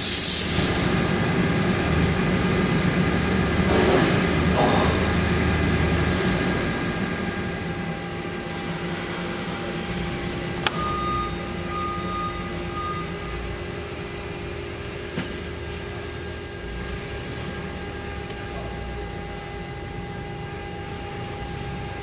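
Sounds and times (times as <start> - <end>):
emergency stop button click: 10.6 - 11.3
high beep: 10.7 - 13.4.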